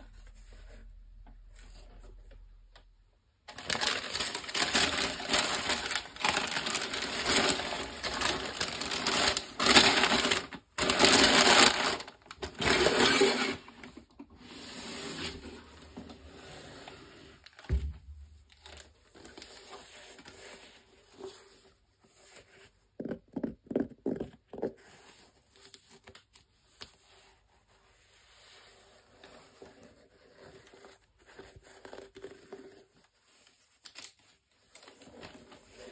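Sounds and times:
tissue paper crinkling: 0:03.5 - 0:13.6.

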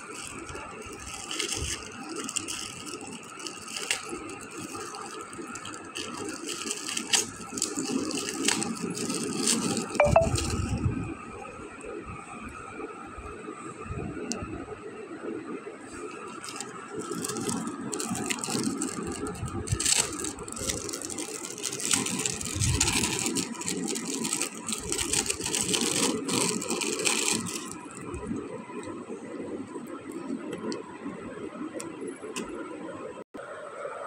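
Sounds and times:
plastic bag crinkling: 0:00.0 - 0:10.8, 0:16.0 - 0:28.9
steady background noise: 0:00.0 - 0:34.0.

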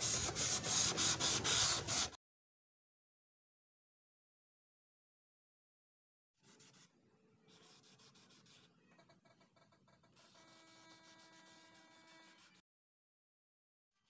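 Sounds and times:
wet sandpaper rubbing plastic: 0:00.0 - 0:02.2, 0:10.2 - 0:12.6.

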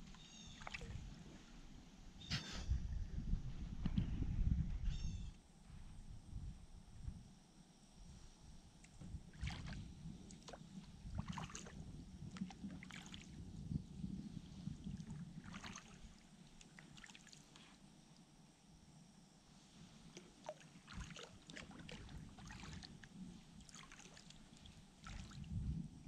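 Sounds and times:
low steady rumble: 0:00.0 - 0:26.0
paddle splashes and drips: 0:00.5 - 0:01.0, 0:09.3 - 0:13.4, 0:14.8 - 0:17.7, 0:20.1 - 0:25.5.

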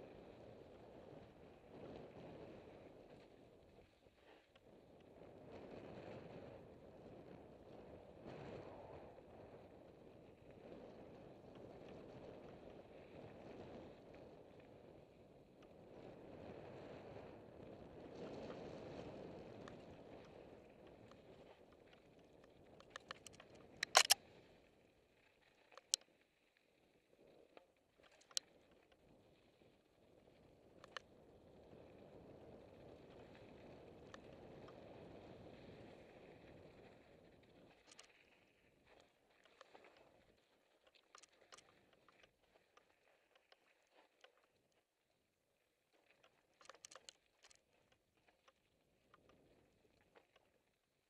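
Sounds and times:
sharp clicks: 0:22.8 - 0:24.2.

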